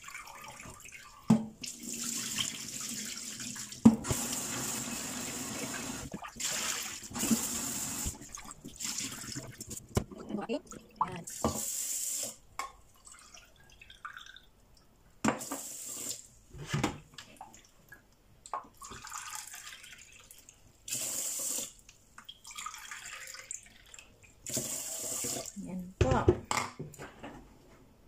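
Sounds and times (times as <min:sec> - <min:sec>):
tap water running into sink: 0:00.0 - 0:10.1, 0:24.4 - 0:25.6
water swishing in a pot: 0:00.0 - 0:11.9, 0:22.2 - 0:25.6.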